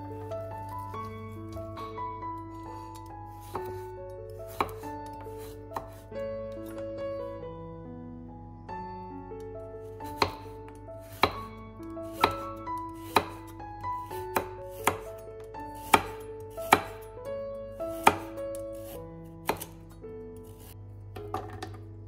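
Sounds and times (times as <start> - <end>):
knife chopping on wooden board: 3.0 - 3.8, 4.5 - 6.0, 10.0 - 11.5, 12.1 - 13.5, 14.2 - 15.1, 15.8 - 17.1, 17.9 - 19.8.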